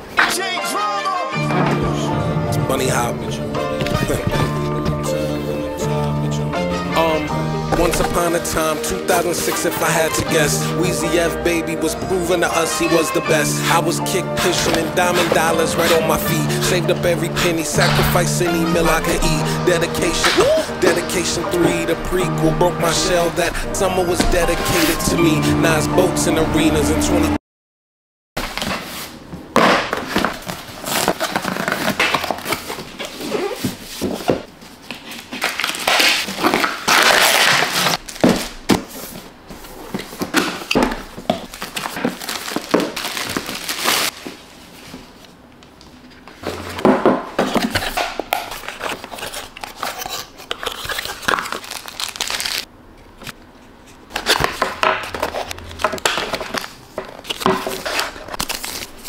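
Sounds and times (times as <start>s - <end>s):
paper and cardboard crinkling: 3.8s - 5.5s, 7.7s - 11.1s, 11.8s - 25.2s, 28.4s - 45.4s, 46.1s - 59.0s
tissue paper crumpling: 41.4s - 44.6s, 50.6s - 52.7s.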